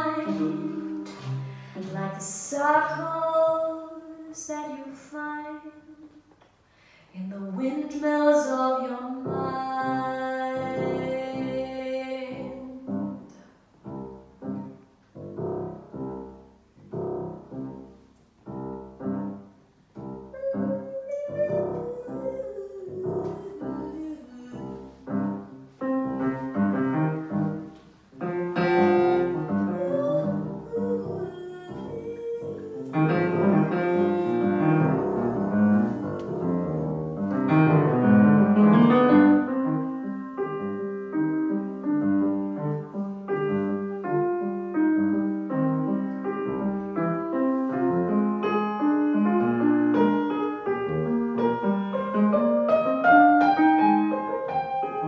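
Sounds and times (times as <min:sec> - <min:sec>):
piano chords: 0:00.0 - 0:06.2, 0:07.5 - 0:55.0
saxophone: 0:20.2 - 0:25.0.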